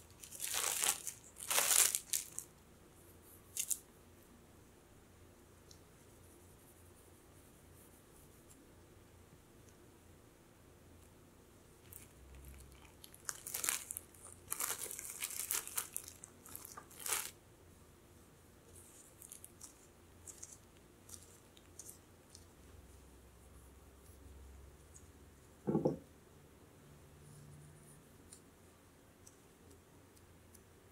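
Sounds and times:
cling wrap crinkling: 0.0 - 2.6, 3.6 - 3.8, 11.8 - 17.4, 18.8 - 22.5.

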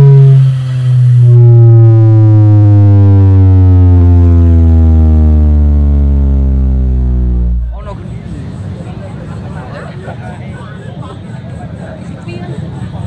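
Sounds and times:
deep bass tone gliding downward: 0.0 - 8.8.

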